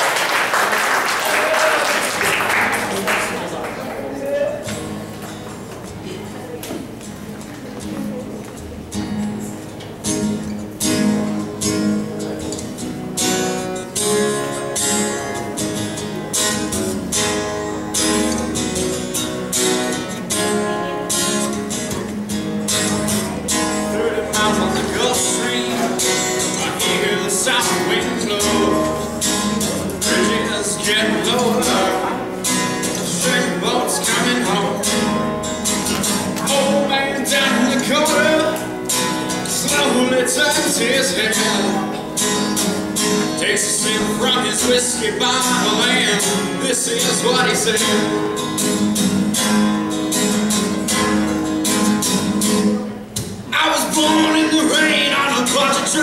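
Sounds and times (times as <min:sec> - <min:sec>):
acoustic guitar strumming: 0:00.0 - 0:56.0.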